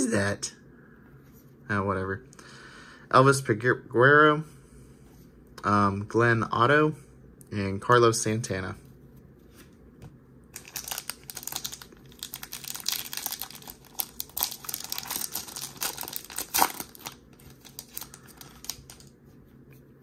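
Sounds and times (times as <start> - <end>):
plastic wrapper tearing and crinkling: 10.6 - 19.1.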